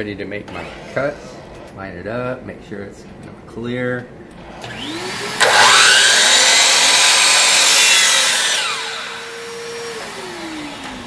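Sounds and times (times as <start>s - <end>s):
miter saw cutting wood: 4.6s - 11.0s
saw motor whining: 4.6s - 11.0s.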